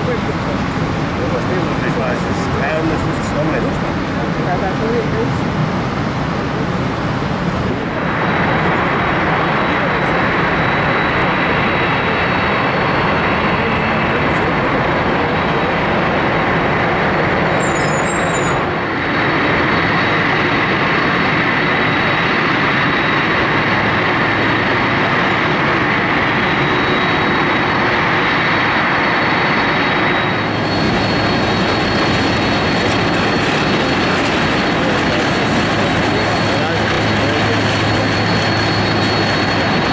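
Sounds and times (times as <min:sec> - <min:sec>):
jet engine rumble and whine: 0:00.0 - 0:39.9.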